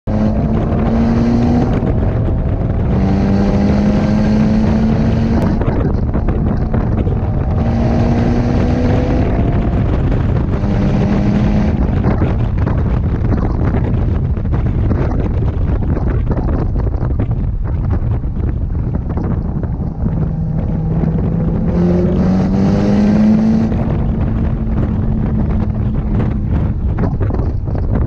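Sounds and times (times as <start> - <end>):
car engine working hard: 0.0 - 28.0
road and wind noise: 0.0 - 28.0.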